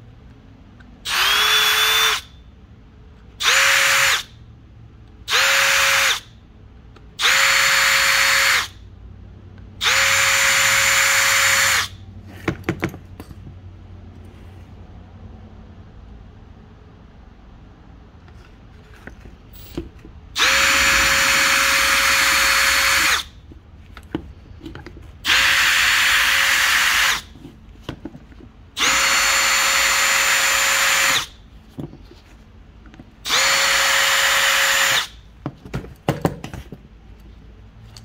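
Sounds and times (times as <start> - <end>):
cordless drill drilling: 1.1 - 2.3, 3.4 - 4.3, 5.3 - 6.3, 7.2 - 8.8, 9.8 - 12.0, 20.4 - 23.4, 25.2 - 27.3, 28.8 - 31.4, 33.2 - 35.2.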